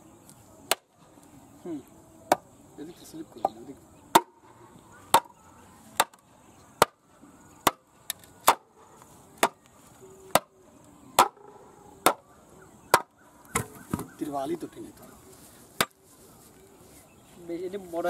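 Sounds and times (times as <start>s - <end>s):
bamboo mallet knocking post: 3.4s - 4.4s, 6.0s - 6.2s, 11.2s - 12.2s.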